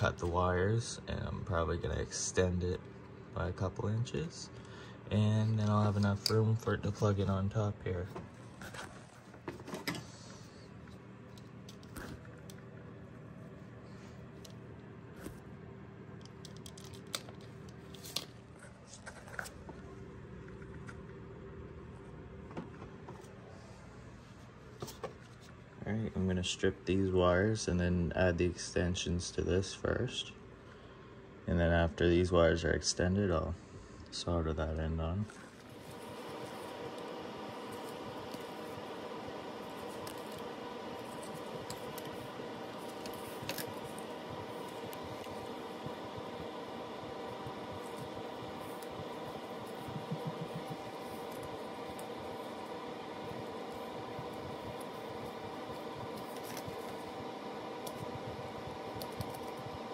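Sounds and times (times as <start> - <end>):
steady low hum: 0.0 - 59.9
wiring harness clicks and rustles: 16.2 - 18.4.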